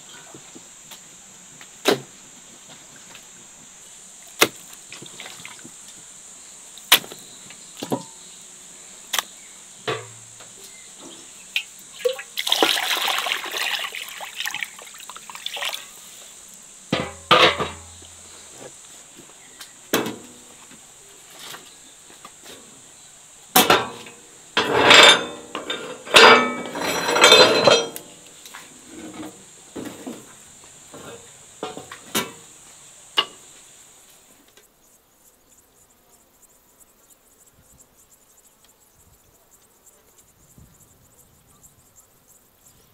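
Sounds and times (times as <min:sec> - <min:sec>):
utensils and dishes clinking: 0:24.6 - 0:28.1.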